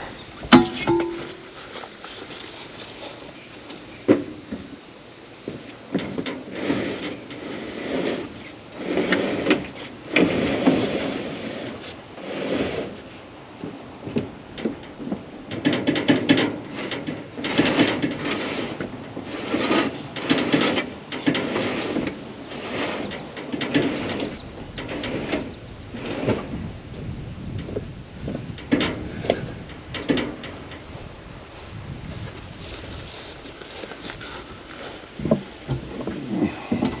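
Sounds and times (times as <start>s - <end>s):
steel cages knocking and rattling: 0.0s - 4.7s, 5.4s - 7.5s, 13.6s - 26.6s, 27.5s - 31.1s, 32.6s - 37.0s
containers scraping on wooden boards: 0.5s - 4.6s, 5.5s - 13.2s, 15.8s - 26.6s, 32.6s - 37.0s.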